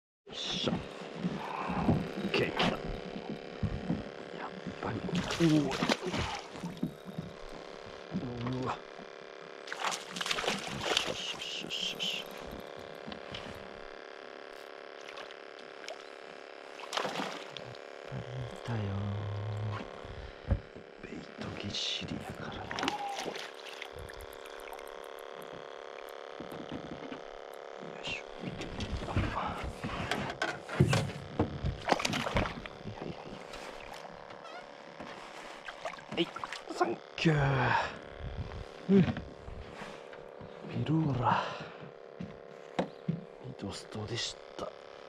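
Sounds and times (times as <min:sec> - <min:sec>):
water lapping: 0:03.9 - 0:07.6, 0:09.7 - 0:11.4, 0:16.7 - 0:17.8, 0:22.6 - 0:25.1, 0:35.1 - 0:37.0
fish splashing at water surface: 0:09.7 - 0:11.1, 0:16.8 - 0:17.6
fish splashing in water: 0:09.7 - 0:11.2, 0:16.8 - 0:17.6, 0:22.7 - 0:25.2, 0:35.6 - 0:36.7.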